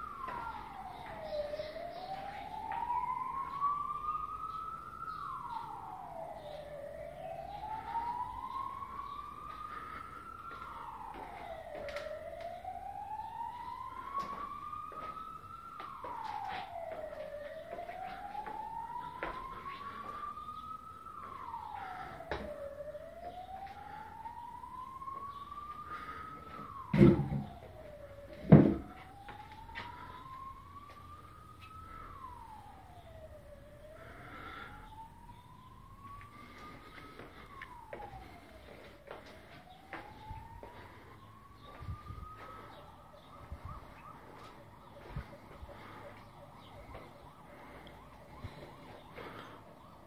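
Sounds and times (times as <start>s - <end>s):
siren wailing: 0.0s - 50.0s
loud thump: 26.9s - 27.4s, 28.4s - 28.9s.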